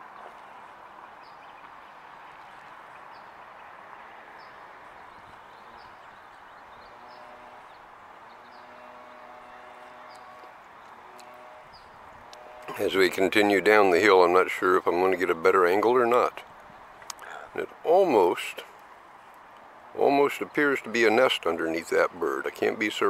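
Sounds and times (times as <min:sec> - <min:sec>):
faint engine hum: 0:00.0 - 0:15.6
distant road hum: 0:00.0 - 0:23.0
small birds chirping: 0:04.4 - 0:12.3.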